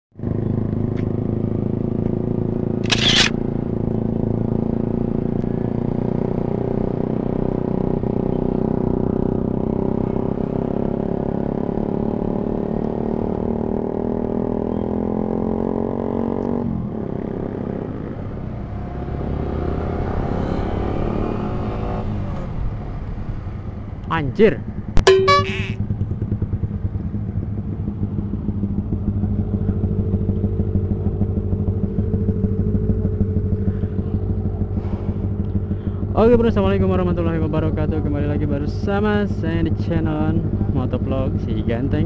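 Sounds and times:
motorcycle engine running: 0:00.2 - 0:14.8, 0:24.7 - 0:42.0
brief sharp noise: 0:25.0 - 0:25.8.

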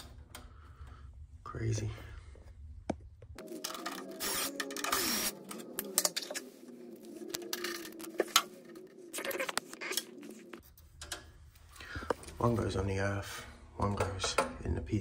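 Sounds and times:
wires rustling and scraping: 0:03.4 - 0:14.3.

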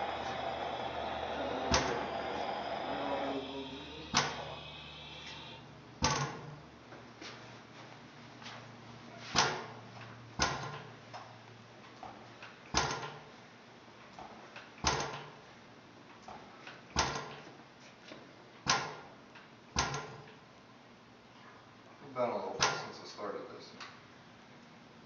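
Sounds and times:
faint engine clicks: 0:00.0 - 0:05.6
gas engine firing bangs: 0:00.0 - 0:05.6.

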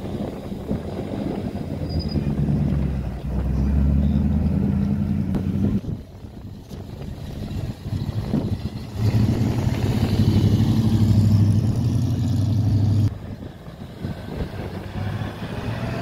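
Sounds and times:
another car engine approaching: 0:00.3 - 0:16.0.

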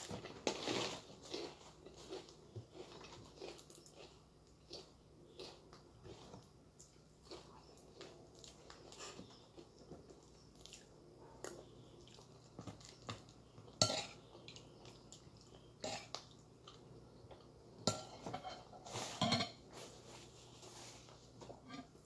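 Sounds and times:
cutlery scraping a ceramic plate: 0:13.8 - 0:14.2, 0:17.9 - 0:19.6.

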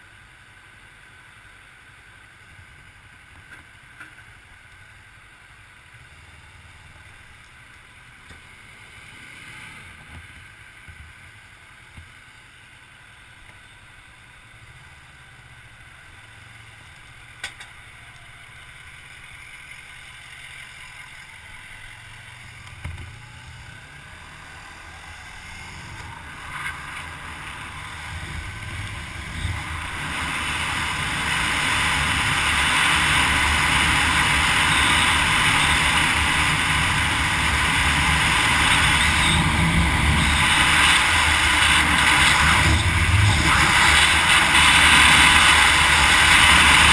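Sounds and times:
motorcycle engine running: 0:00.2 - 0:46.9
wind rushing over camera: 0:24.1 - 0:46.9.

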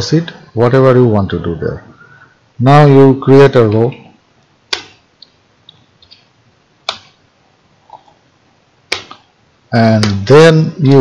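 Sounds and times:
computer keyboard keystrokes: 0:08.9 - 0:09.2.

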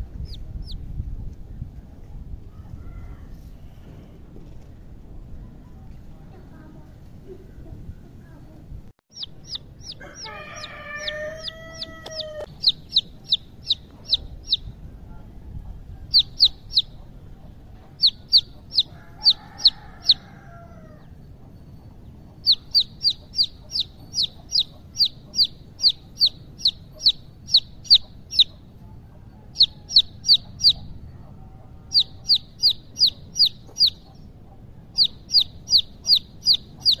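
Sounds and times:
chicks peeping: 0:00.0 - 0:01.6, 0:09.1 - 0:21.1, 0:22.0 - 0:37.0.

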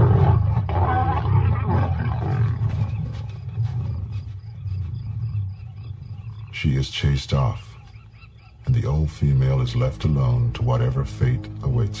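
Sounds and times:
lions growling: 0:00.0 - 0:07.7.

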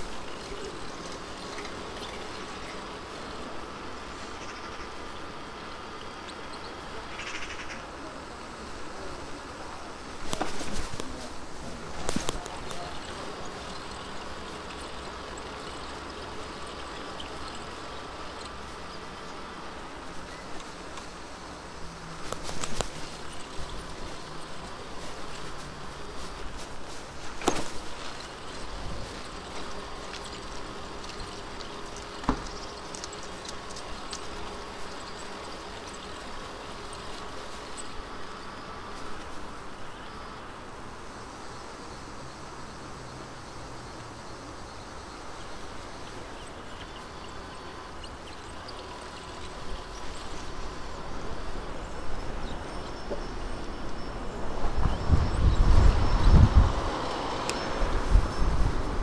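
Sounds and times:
bicycle rolling noise: 0:00.0 - 0:07.2, 0:22.1 - 0:40.4, 0:45.7 - 0:59.0
faint high chirps: 0:00.0 - 0:07.8, 0:22.8 - 0:26.4, 0:27.6 - 0:40.4, 0:46.0 - 0:57.9
steady outdoor hiss: 0:00.0 - 0:59.0
wind buffeting microphone: 0:50.6 - 0:59.0.

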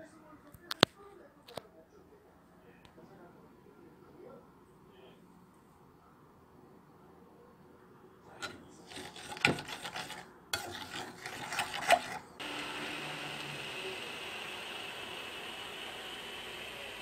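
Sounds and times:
metal spoon scraping a saucepan: 0:08.4 - 0:12.4
pot hissing on hob: 0:12.4 - 0:17.0.

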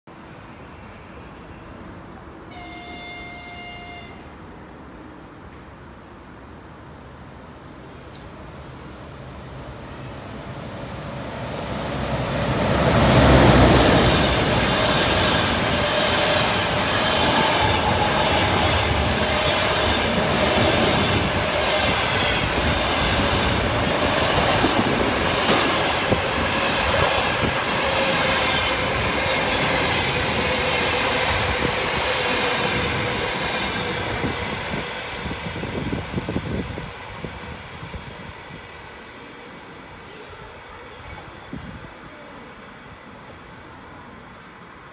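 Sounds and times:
electric locomotive passing: 0:06.2 - 0:44.9
train wheels clickety-clack: 0:13.2 - 0:35.3.

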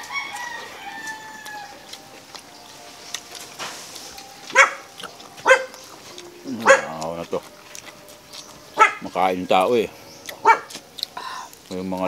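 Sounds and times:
dog barking: 0:04.5 - 0:05.8, 0:06.6 - 0:07.0, 0:08.8 - 0:09.1, 0:10.4 - 0:10.7.

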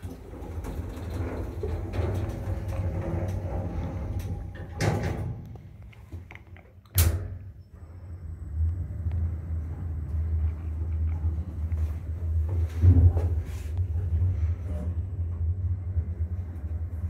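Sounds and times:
sliding doors banging shut: 0:00.0 - 0:05.5
lift humming: 0:00.0 - 0:06.3, 0:07.4 - 0:17.0.

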